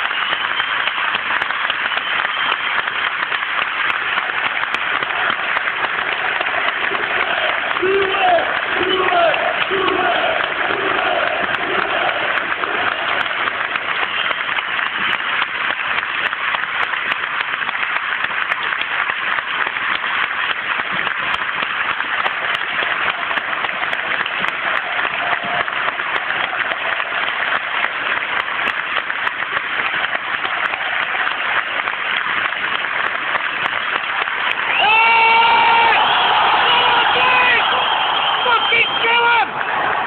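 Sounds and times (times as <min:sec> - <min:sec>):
stadium crowd applauding: 0:00.0 - 0:40.0.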